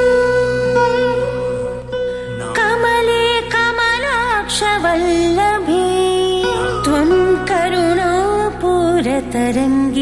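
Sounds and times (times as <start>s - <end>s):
ornamented melody: 0.0s - 10.0s.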